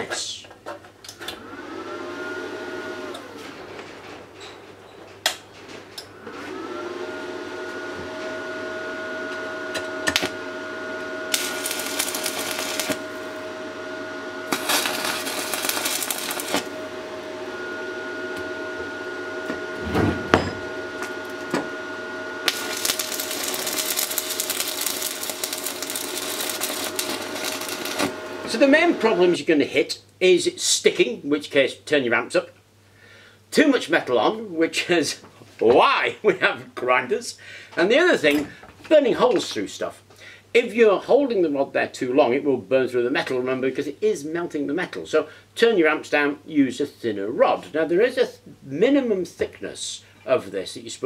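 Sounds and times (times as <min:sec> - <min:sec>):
welding machine electrical whine: 0:06.0 - 0:29.4
welding arc crackling and sizzling: 0:09.7 - 0:13.8, 0:14.4 - 0:17.3, 0:20.7 - 0:29.2.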